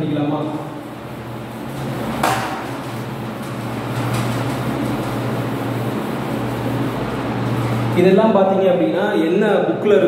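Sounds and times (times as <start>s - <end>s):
cloth wiping a whiteboard: 0.4s - 8.2s.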